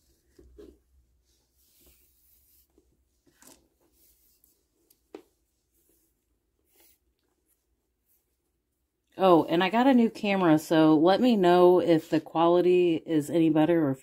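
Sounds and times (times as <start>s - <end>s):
faint rustling of string: 0.0s - 9.1s.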